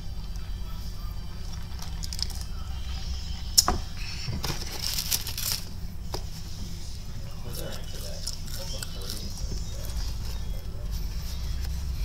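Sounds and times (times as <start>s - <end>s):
steady low hum: 0.0s - 12.0s
crinkly packaging rustling: 4.4s - 5.8s.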